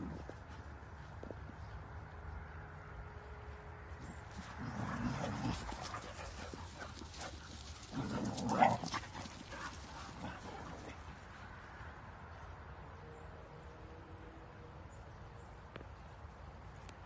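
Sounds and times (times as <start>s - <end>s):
dogs playing on grass: 0.0s - 12.7s.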